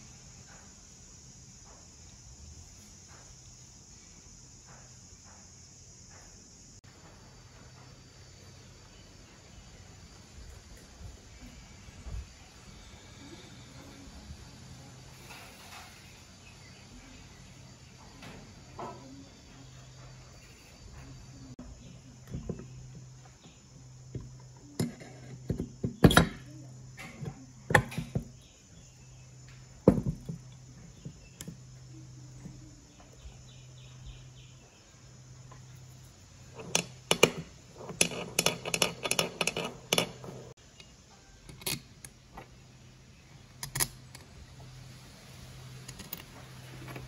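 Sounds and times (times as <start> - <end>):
steady low hum: 0.0 - 47.0
metal parts knocking and clinking: 36.5 - 40.5, 45.8 - 46.4.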